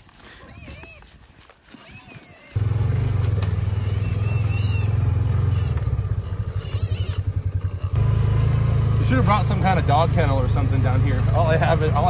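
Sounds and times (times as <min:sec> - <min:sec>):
vehicle engine droning: 0:02.6 - 0:12.0.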